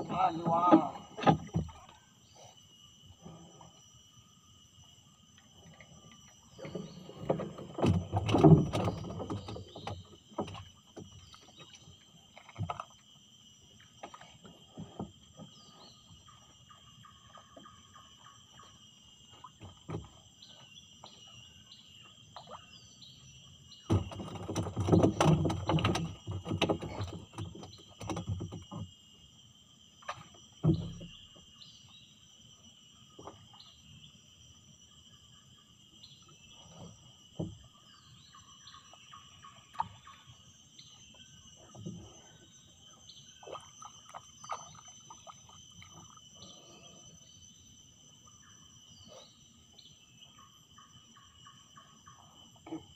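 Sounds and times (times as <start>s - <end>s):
insects chirring: 0.0s - 52.9s
water splashing: 43.4s - 46.2s.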